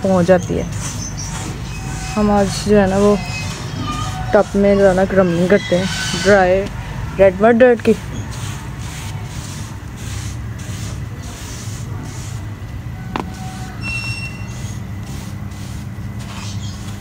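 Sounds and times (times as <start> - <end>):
brush sweeping concrete floor: 0.6 - 6.6, 7.6 - 12.5, 14.4 - 17.0.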